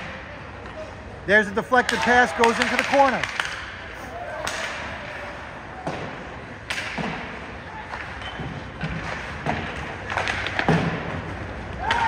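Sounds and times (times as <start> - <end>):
hockey sticks and skates scraping: 0.0 - 12.0
puck knocking rink boards: 1.8 - 3.6, 5.8 - 12.0.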